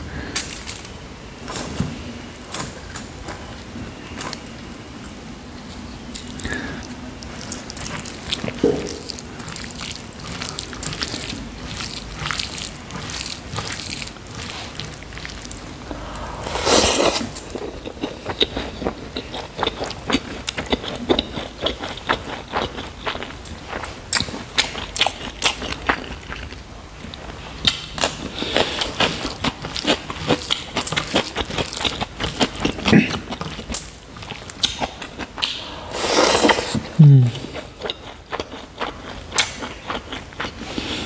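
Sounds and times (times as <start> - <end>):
fingers mixing wet rice: 7.3 - 15.6.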